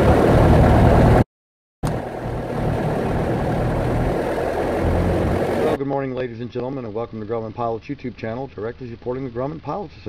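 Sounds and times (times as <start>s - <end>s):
propeller aircraft engine running: 0.0s - 1.2s, 1.8s - 5.8s.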